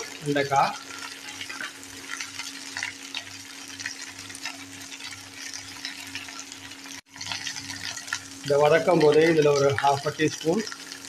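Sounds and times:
okra sizzling in oil: 0.0 - 11.0.

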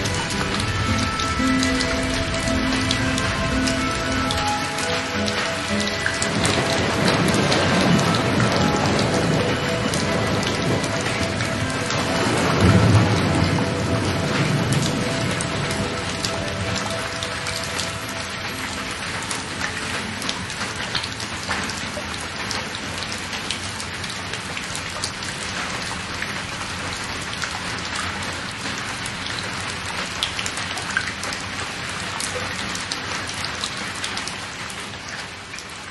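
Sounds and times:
faint music notes: 0.0 - 24.0
rain pattering: 0.0 - 35.9.

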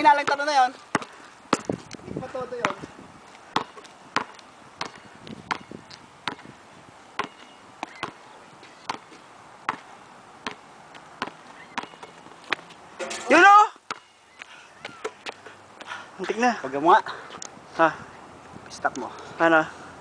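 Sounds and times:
basketball bouncing on asphalt: 0.0 - 6.6, 7.2 - 15.4.

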